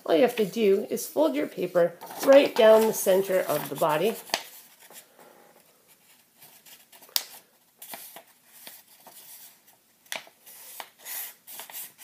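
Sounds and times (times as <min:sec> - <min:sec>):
paper rustling and crackling: 0:02.0 - 0:05.1, 0:05.9 - 0:12.0.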